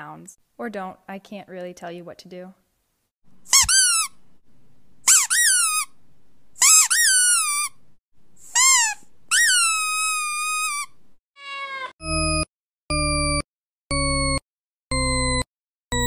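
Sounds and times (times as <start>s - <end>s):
cat meowing: 11.4s - 12.0s
steady electronic beep: 12.0s - 16.0s.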